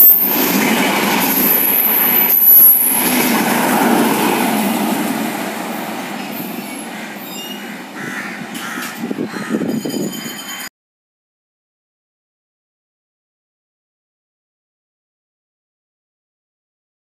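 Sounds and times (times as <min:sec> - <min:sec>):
train clatter: 0:00.0 - 0:07.7, 0:08.5 - 0:10.7
train wheels rolling on rails: 0:00.0 - 0:10.7.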